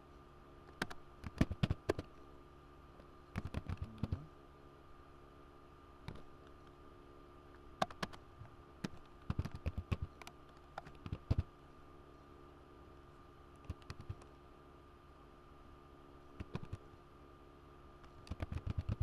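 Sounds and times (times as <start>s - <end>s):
faint steady hum: 0.0s - 19.0s
keyboard typing: 3.4s - 4.2s, 8.8s - 10.1s, 18.2s - 19.0s.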